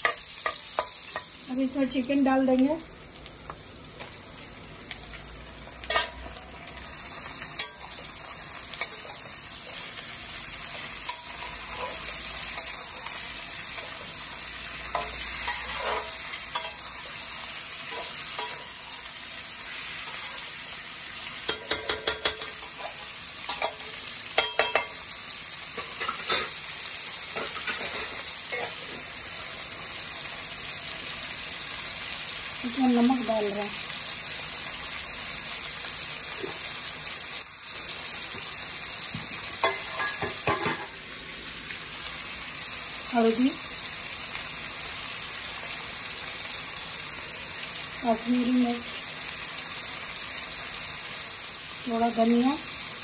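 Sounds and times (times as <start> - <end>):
chicken sizzling in hot oil: 0.0 - 53.0
metal spatula scraping pan: 14.9 - 16.8.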